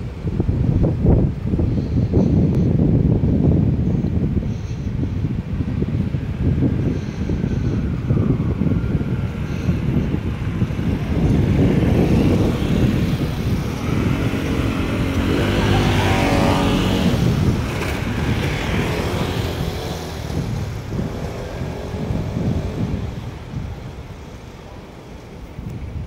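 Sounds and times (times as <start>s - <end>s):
low traffic rumble: 0.0s - 26.0s
vehicle engine passing: 9.6s - 23.7s.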